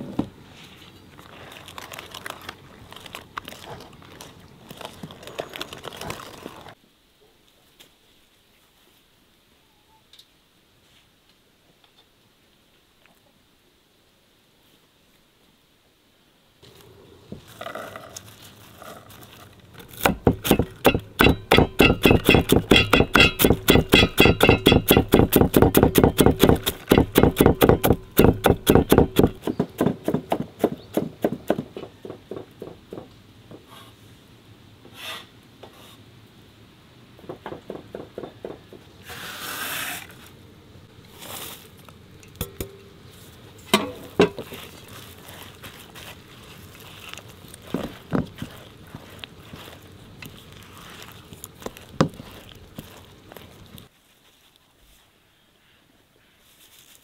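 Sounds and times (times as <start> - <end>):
fast knocking of kitchen work: 20.1 - 33.6.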